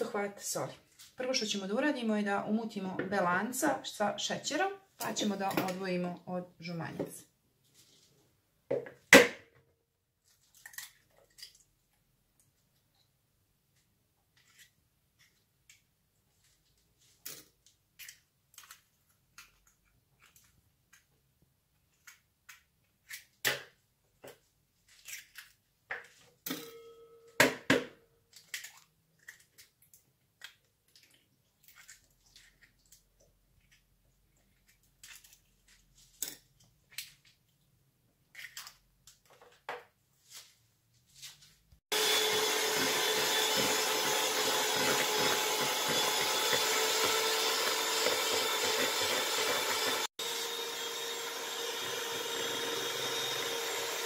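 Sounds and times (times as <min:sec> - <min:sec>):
electric hand mixer running: 0:41.9 - 0:54.0.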